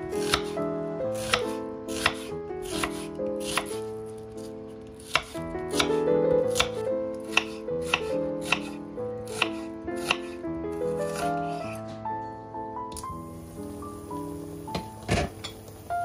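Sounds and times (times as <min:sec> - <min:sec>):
background music: 0:00.0 - 0:16.0
knife slicing onion on board: 0:00.2 - 0:03.8, 0:05.0 - 0:05.9, 0:06.5 - 0:11.8.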